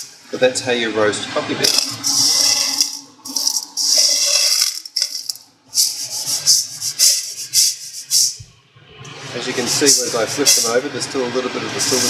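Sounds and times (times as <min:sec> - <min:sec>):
coffee beans rattling in metal bowl: 0:01.6 - 0:07.0.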